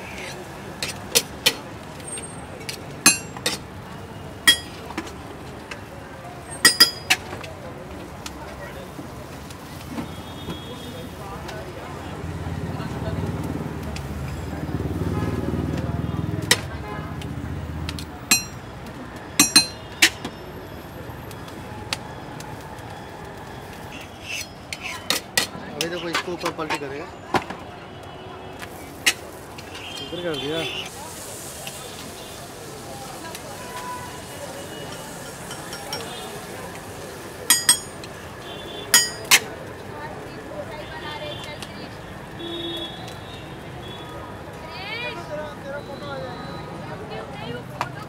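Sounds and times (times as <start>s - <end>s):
street stall background noise: 0.0s - 48.0s
metal utensils clinking: 3.1s - 3.6s, 4.5s - 4.8s, 18.3s - 18.6s, 19.4s - 19.8s, 34.9s - 36.2s, 37.5s - 38.0s, 38.9s - 39.4s.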